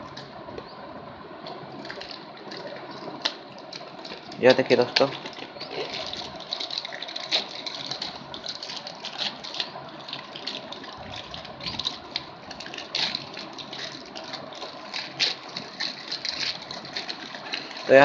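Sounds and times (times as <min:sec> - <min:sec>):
plastic mailer bag crinkling: 0:01.8 - 0:18.0.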